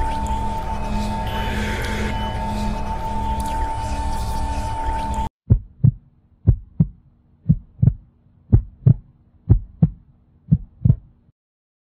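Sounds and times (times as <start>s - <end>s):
heartbeat thumps: 5.5s - 11.2s.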